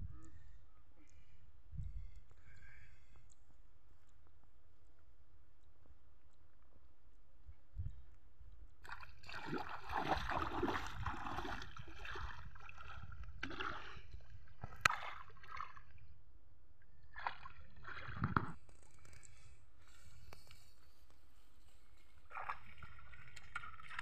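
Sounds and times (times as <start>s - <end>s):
water sloshing and splashing: 8.8s - 16.2s, 17.0s - 19.5s, 21.9s - 24.0s.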